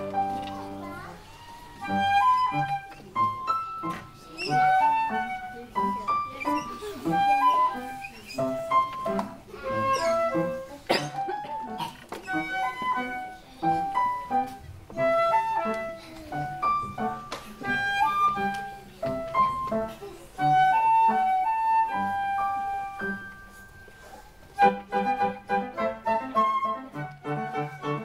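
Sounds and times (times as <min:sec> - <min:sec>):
piano accompaniment: 0:00.0 - 0:28.0
flute melody: 0:01.2 - 0:09.0, 0:12.3 - 0:13.2, 0:14.9 - 0:15.8, 0:20.4 - 0:28.0.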